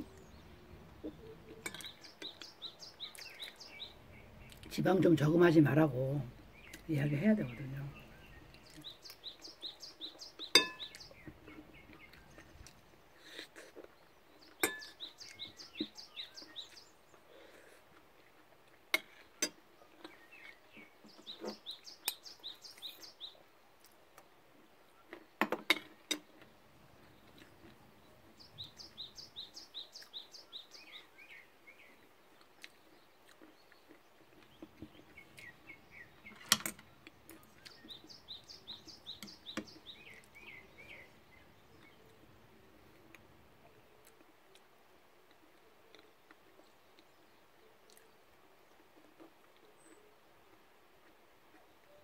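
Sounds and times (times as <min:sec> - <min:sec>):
songbird singing: 0:00.0 - 0:52.0
metal spoon clinking dish: 0:10.6 - 0:11.0, 0:14.6 - 0:14.9.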